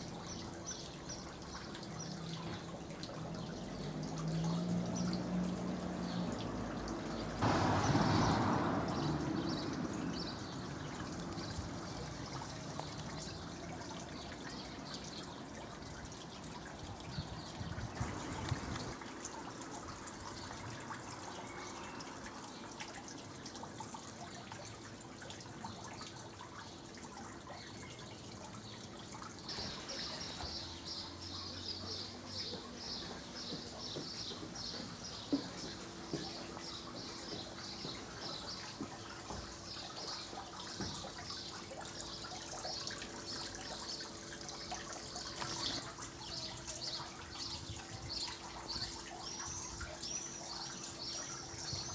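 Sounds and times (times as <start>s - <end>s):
trickling water: 0.0s - 51.9s
water rushing: 0.0s - 51.9s
birds chirping: 29.5s - 51.9s.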